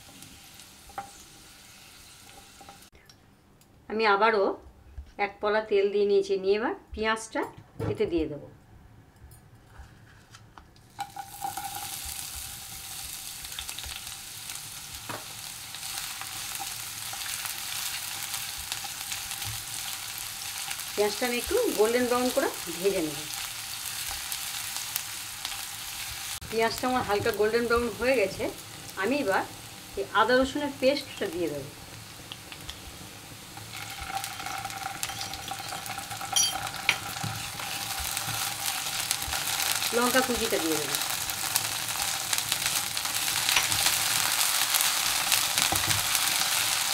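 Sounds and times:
onions sizzling in hot oil: 0.0 - 2.9, 10.9 - 46.9
spatula scraping a pan: 33.6 - 39.8
ringing metal clink: 36.3 - 36.8.

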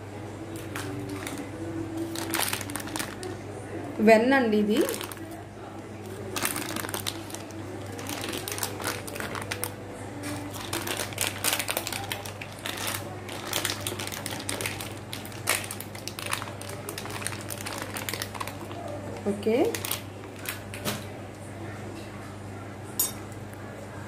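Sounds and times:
plastic packet crinkling: 0.6 - 3.4, 4.8 - 5.4, 6.0 - 20.9.

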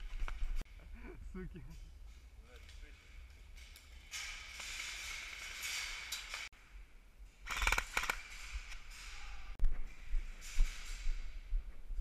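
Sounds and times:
sharp mechanical clicks: 7.5 - 8.8.

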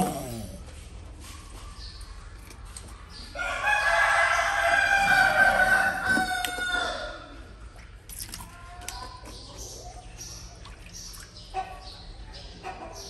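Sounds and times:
rooster crowing: 3.4 - 7.3.

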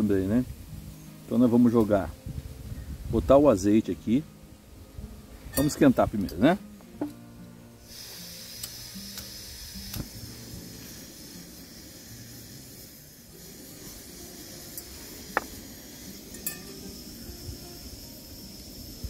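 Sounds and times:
metal utensil clinks on pan: 5.5 - 5.8, 16.3 - 16.8
oil hissing in pan: 7.7 - 19.0.

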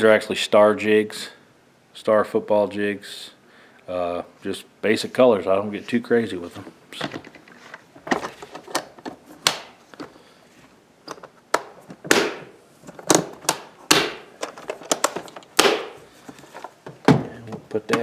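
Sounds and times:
plastic boxes clacking and knocking: 6.6 - 10.1, 11.0 - 18.0.

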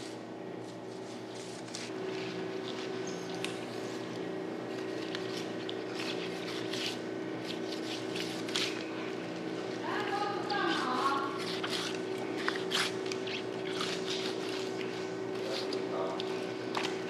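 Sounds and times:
steady background hum: 0.0 - 17.0
knife scraping and squelching: 4.7 - 8.9, 10.1 - 17.0.

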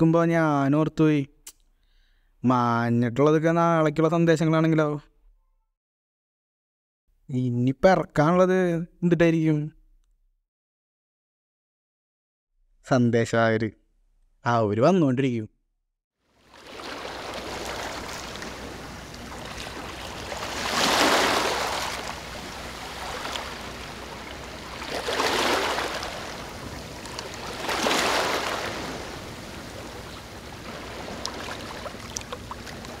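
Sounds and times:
rushing water: 16.4 - 33.0.

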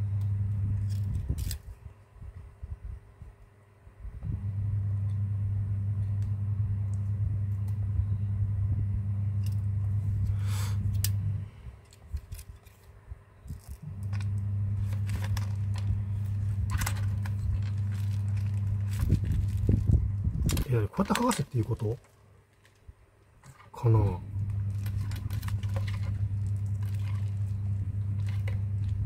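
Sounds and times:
low electrical hum: 0.0 - 29.0
plastic tools clicking and scraping: 11.8 - 15.9.

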